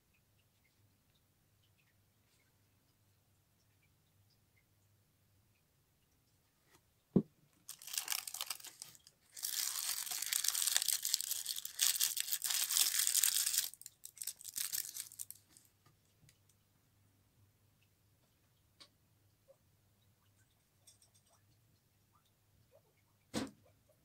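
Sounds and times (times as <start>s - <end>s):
wrapping paper crinkling: 7.7s - 15.7s.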